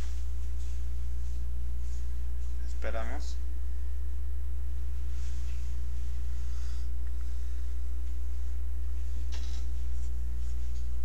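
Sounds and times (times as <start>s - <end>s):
low electrical hum: 0.0s - 11.0s
soft rustle: 4.9s - 6.6s.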